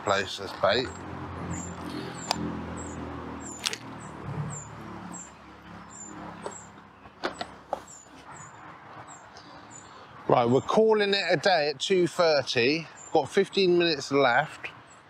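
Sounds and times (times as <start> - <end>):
fishing tackle clicks: 3.6 - 3.9.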